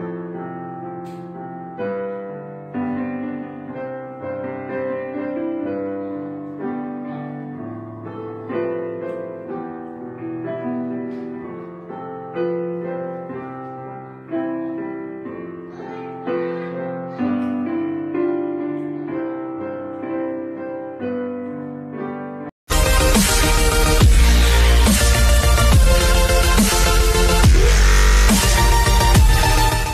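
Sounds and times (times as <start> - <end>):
gentle piano chords: 0.0 - 22.5.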